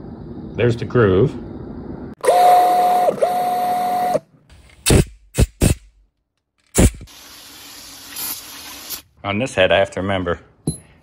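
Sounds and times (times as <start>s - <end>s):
aerosol can spraying: 6.7s - 9.1s.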